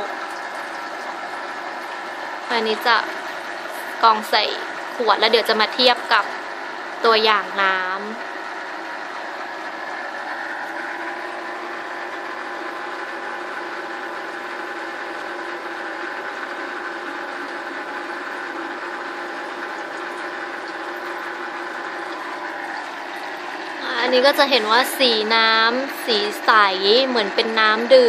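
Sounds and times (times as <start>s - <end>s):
electric water pump humming: 0.0s - 28.0s.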